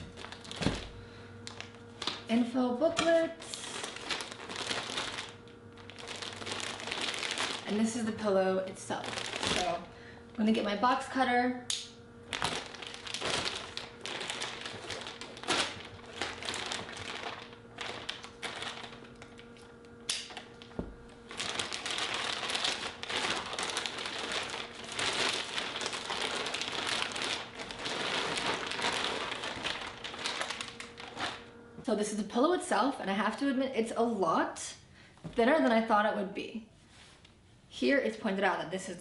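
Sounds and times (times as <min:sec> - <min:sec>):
plastic bag crinkling: 0:00.0 - 0:09.9, 0:12.2 - 0:31.6.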